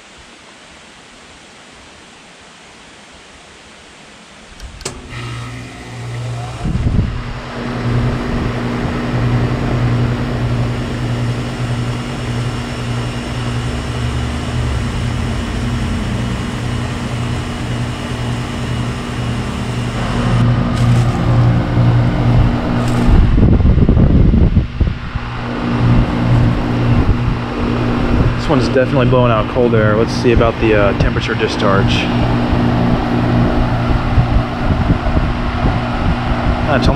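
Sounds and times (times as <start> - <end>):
fan rushing: 2.5 - 36.9
heat pump compressor hum: 4.3 - 36.9
wind buffeting microphone: 6.5 - 9.0, 21.9 - 36.9.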